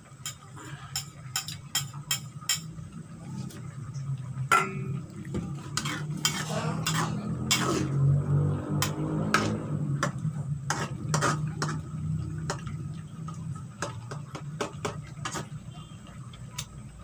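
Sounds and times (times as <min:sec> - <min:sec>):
low steady hum: 0:00.0 - 0:17.0
spatula scraping frying pan: 0:05.5 - 0:09.6, 0:10.6 - 0:12.0.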